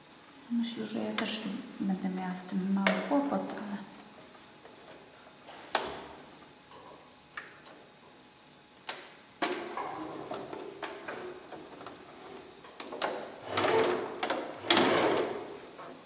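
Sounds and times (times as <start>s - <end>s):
sewing machine stitching: 13.0s - 15.6s.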